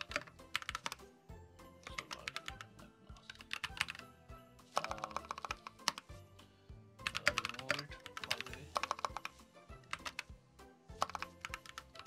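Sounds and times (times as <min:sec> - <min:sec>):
mechanical keyboard clacking: 0:00.0 - 0:01.0, 0:01.9 - 0:04.0, 0:04.8 - 0:06.0, 0:07.0 - 0:09.3, 0:11.0 - 0:12.0
soft background music: 0:00.0 - 0:12.0.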